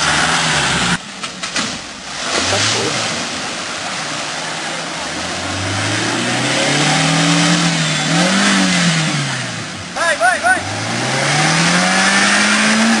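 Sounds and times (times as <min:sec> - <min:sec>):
engine revving under load: 0:00.0 - 0:01.0, 0:02.2 - 0:13.0
muddy water churning: 0:00.0 - 0:09.2.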